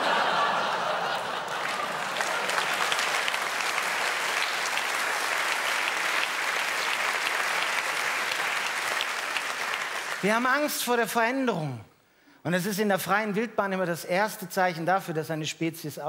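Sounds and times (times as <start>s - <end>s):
audience applauding: 0.0s - 10.8s.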